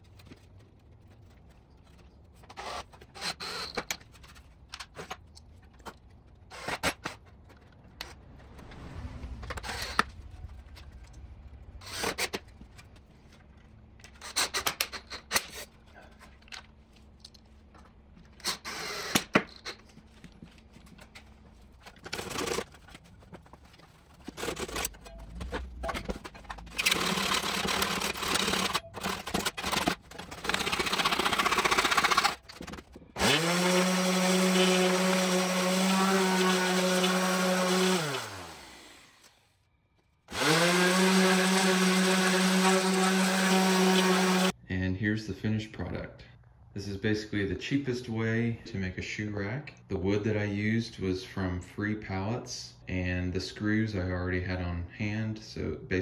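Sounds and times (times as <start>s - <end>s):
steady scraping: 7.2s - 14.3s.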